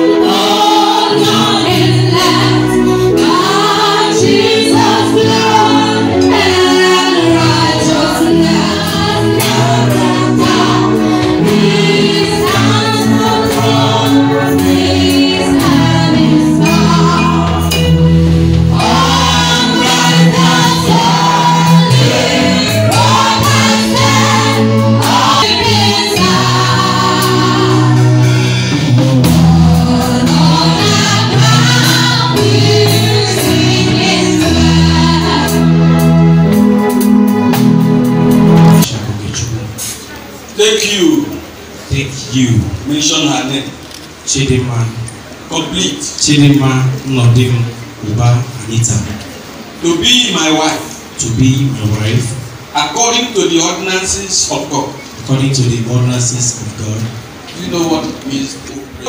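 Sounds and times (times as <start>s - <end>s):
voices singing gospel song: 0.0s - 38.9s
church band with electric keyboard: 0.0s - 59.0s.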